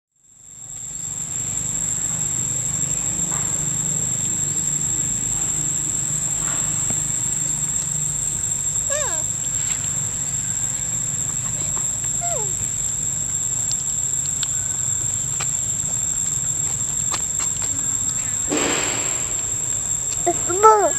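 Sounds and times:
insects droning: 0:00.2 - 0:20.9
low steady hum: 0:17.7 - 0:20.9.

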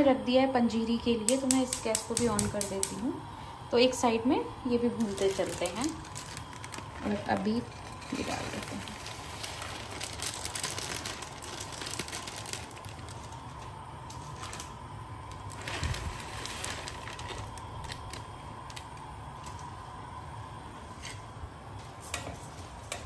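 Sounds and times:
steady low hum: 0:00.0 - 0:23.0
plastic packet crinkling: 0:05.0 - 0:13.7, 0:15.3 - 0:19.6
seeds pattering into a pan: 0:05.1 - 0:19.6.

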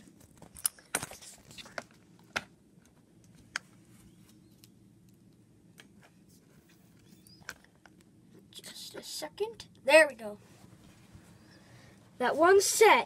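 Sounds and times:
faint room hum: 0:00.0 - 0:13.0.

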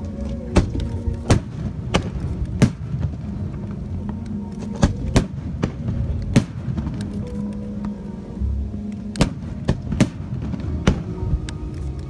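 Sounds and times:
steady music: 0:00.0 - 0:12.0.

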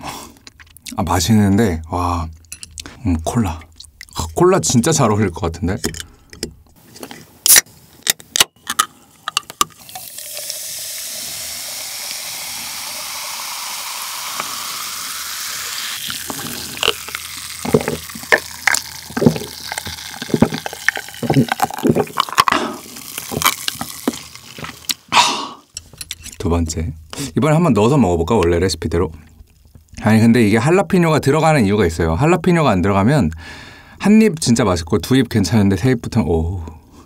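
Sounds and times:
cola pouring and fizzing: 0:09.4 - 0:25.1
fizz crackling on ice: 0:09.8 - 0:25.1
can opening clicks: 0:14.2 - 0:14.7
person gulping: 0:15.7 - 0:25.8.

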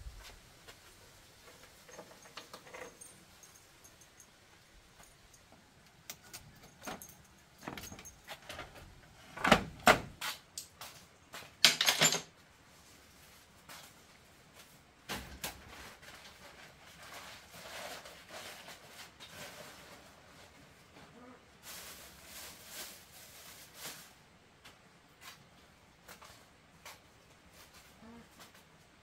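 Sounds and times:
shuffling and handling noises: 0:00.0 - 0:29.0
bamboo door knocking and rattling: 0:07.6 - 0:10.2.

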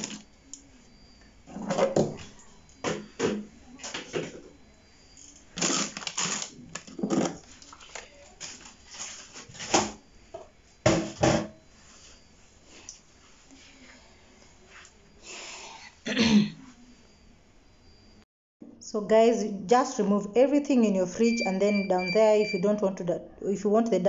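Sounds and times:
plastic food bag rustling: 0:05.6 - 0:09.7
items knocking on shelves: 0:10.8 - 0:11.6.

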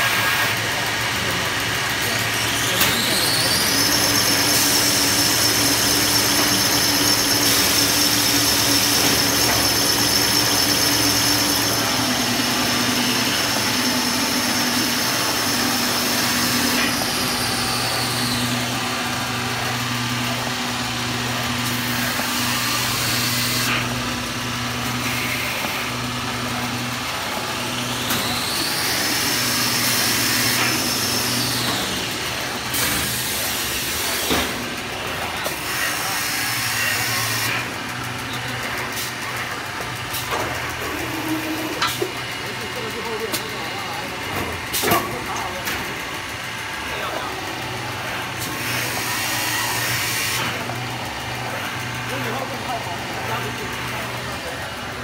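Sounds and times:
high machine whine: 0:00.0 - 0:55.0
machine motor hum: 0:00.0 - 0:55.0.

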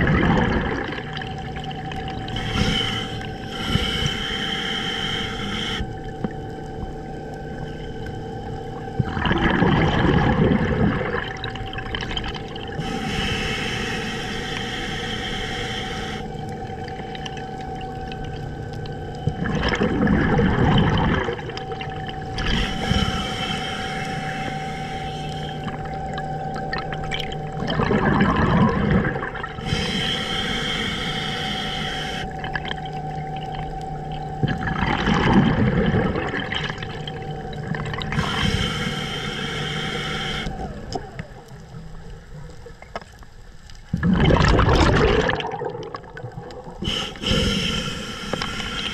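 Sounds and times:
exhaled bubbles rushing: 0:00.0 - 0:03.3, 0:08.7 - 0:13.0, 0:16.4 - 0:23.3, 0:25.3 - 0:30.0, 0:32.1 - 0:38.9, 0:40.4 - 0:43.0, 0:43.8 - 0:47.8
steady hum: 0:00.0 - 0:48.9
regulator hissing inhale: 0:02.2 - 0:06.5, 0:12.7 - 0:16.9, 0:22.4 - 0:26.0, 0:29.6 - 0:32.5, 0:38.0 - 0:41.4, 0:46.8 - 0:48.9.

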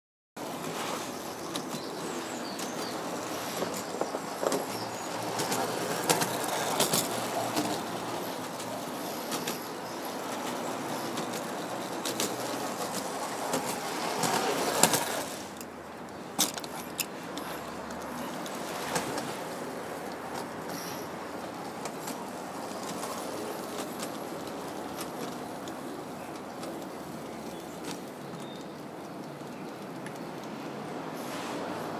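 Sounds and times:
clockwork toy train whirring: 0:03.0 - 0:15.7.

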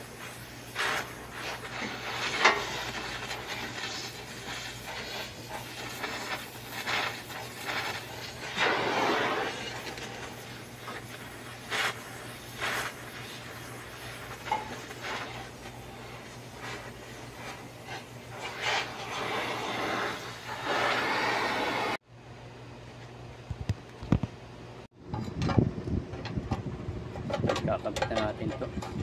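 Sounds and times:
welding torch flame hissing: 0:00.0 - 0:22.0.

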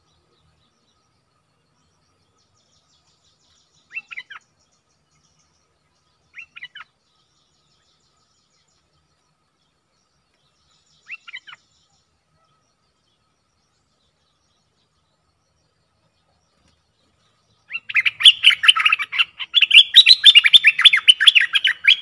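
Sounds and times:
bulbul calling: 0:01.8 - 0:09.3, 0:10.1 - 0:22.0.

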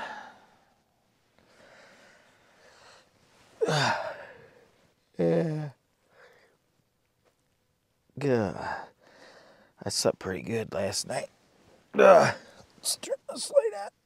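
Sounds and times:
man sighing: 0:00.0 - 0:00.5, 0:03.6 - 0:04.6
man groaning: 0:03.6 - 0:04.3, 0:12.0 - 0:12.5.

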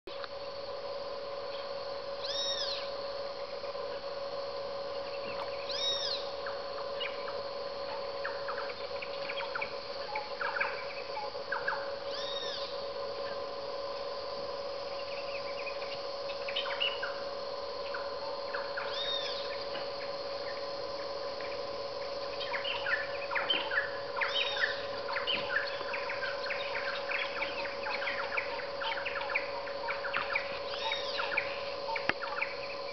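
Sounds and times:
steady drone: 0:00.1 - 0:32.9
jungle birds chirping: 0:01.3 - 0:32.9
loud arching animal call: 0:02.2 - 0:02.9, 0:05.6 - 0:07.3, 0:08.0 - 0:13.4, 0:15.0 - 0:20.7.

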